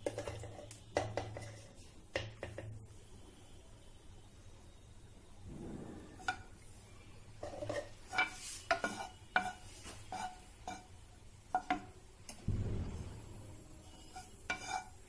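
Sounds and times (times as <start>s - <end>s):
utensils clinking on frying pan: 7.4s - 12.0s, 13.8s - 15.0s.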